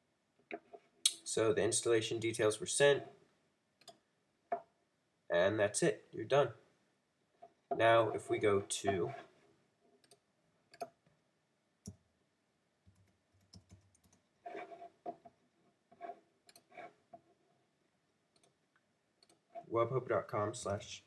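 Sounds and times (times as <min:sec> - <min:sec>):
faint typing on computer keyboard: 0:10.0 - 0:11.0, 0:12.8 - 0:15.4, 0:16.4 - 0:16.9, 0:18.3 - 0:19.7.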